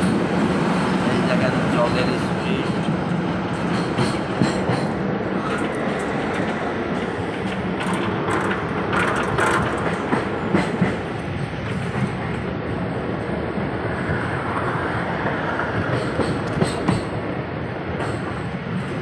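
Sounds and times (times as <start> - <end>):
train wheels rumbling on rail: 0.0 - 19.0
clicks and rattles: 7.5 - 10.8.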